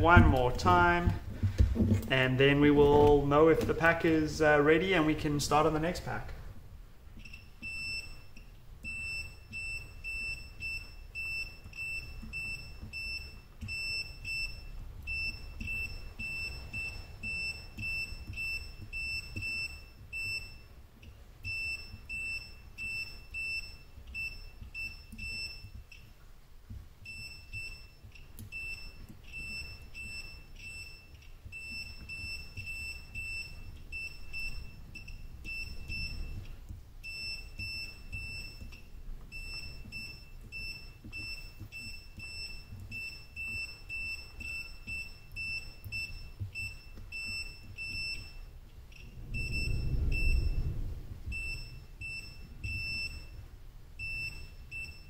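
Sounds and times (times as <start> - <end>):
multimeter short high beeps: 37.0 - 53.4.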